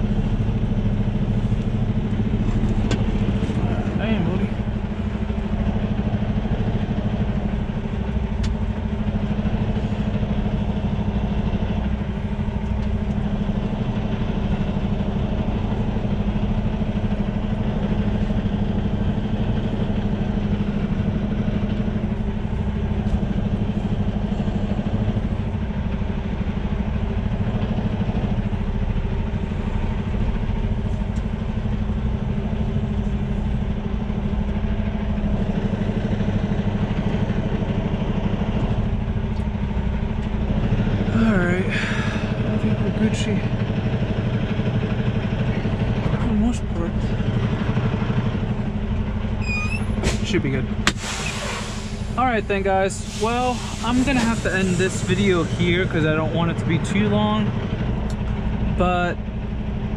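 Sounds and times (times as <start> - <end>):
diesel truck engine idling: 0.0 - 59.9.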